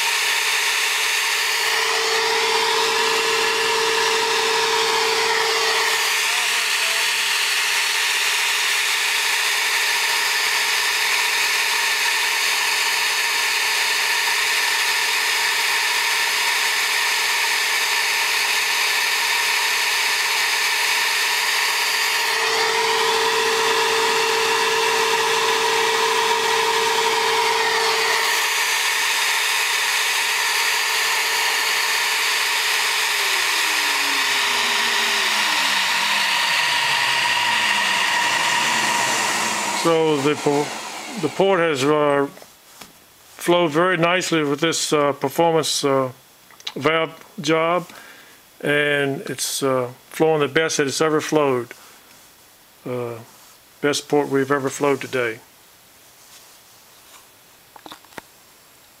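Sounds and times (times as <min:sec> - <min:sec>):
motor hum: 0:00.0 - 0:08.4, 0:19.4 - 0:42.1.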